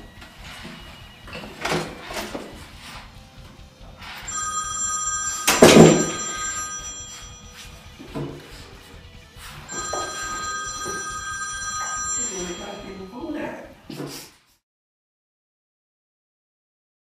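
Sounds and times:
phone ringtone: 4.0s - 8.1s, 9.6s - 13.3s.

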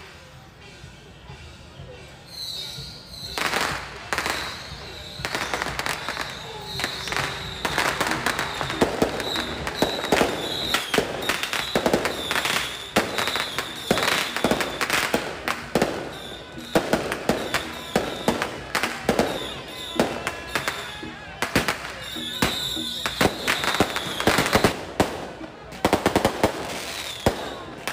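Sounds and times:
firecrackers banging: 2.3s - 27.9s.

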